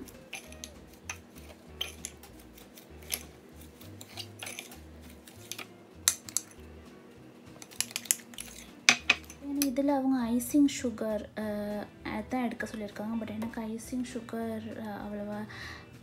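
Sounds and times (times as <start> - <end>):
soft background music: 0.0 - 16.0
metal spoon clinking glass bowl: 0.3 - 2.2, 4.0 - 6.6, 7.6 - 9.4.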